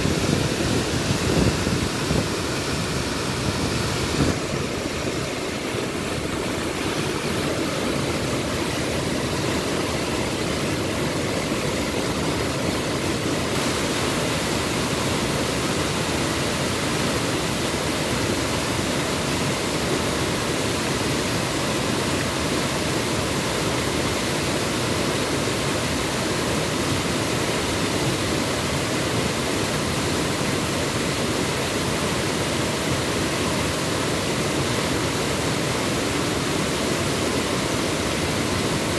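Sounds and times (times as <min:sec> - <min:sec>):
waterfall rushing: 0:00.0 - 0:38.9.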